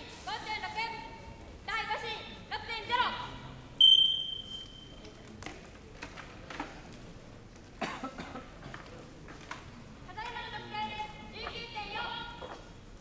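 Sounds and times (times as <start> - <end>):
faint clicks and knocks: 5.0 - 7.7.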